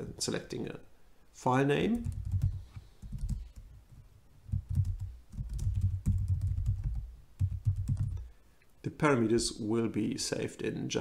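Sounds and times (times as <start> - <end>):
keyboard typing: 2.0 - 3.7, 4.5 - 8.2.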